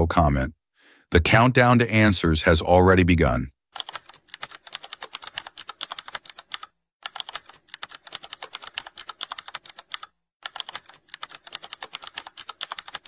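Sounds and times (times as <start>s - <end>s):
keyboard typing: 3.8s - 13.0s.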